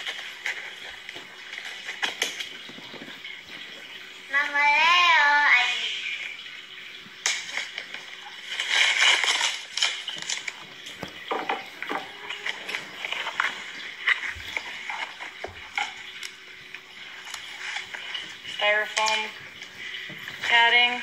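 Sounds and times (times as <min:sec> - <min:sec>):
packing tape tearing: 0:08.4 - 0:10.9.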